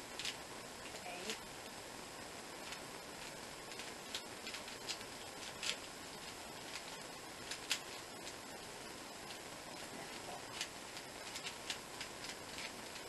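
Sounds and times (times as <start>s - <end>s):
steady hiss: 0.0s - 13.0s
puzzle cube clicking: 6.7s - 8.4s.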